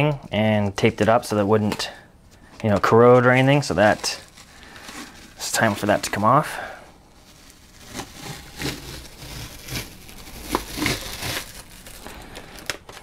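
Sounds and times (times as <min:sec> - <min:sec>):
tape crinkling in hand: 0:02.6 - 0:13.0
masking tape peeling: 0:07.2 - 0:13.0.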